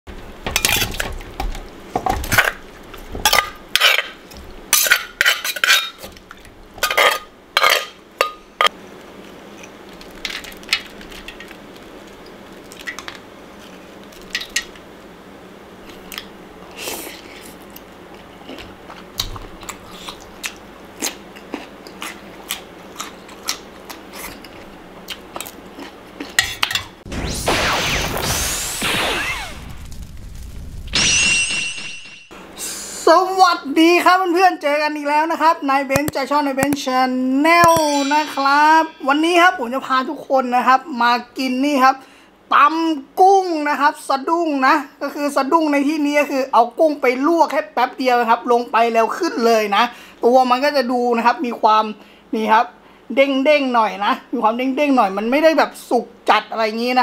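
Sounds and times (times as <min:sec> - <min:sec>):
loud whoosh: 0:27.0 - 0:31.0
dishes clinking: 0:37.6 - 0:39.6.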